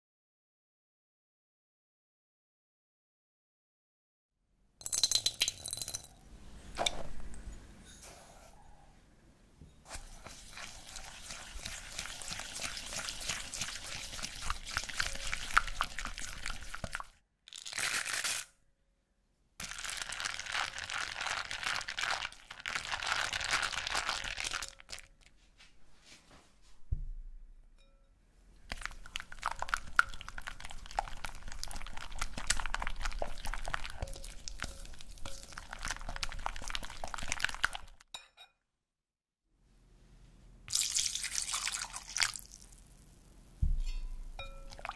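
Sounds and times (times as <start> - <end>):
whisk scraping a glass bowl: 9.8 - 17.1, 29.8 - 37.7.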